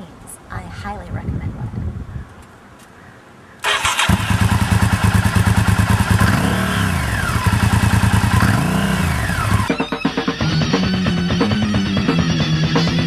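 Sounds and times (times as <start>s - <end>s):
motorcycle engine idling and revving: 3.7s - 13.0s.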